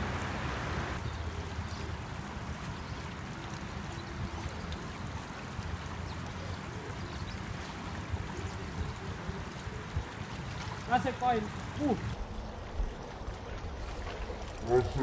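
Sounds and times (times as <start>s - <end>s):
river water flowing over rocks: 0.0s - 14.6s.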